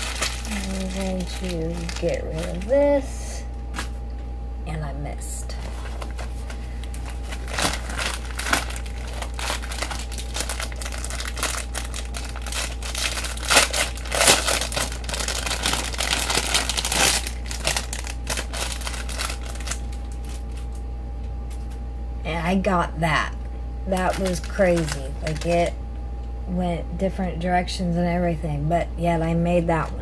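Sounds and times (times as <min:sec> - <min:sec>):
packaging crinkling: 0:00.0 - 0:03.1, 0:05.6 - 0:20.8, 0:23.9 - 0:25.7.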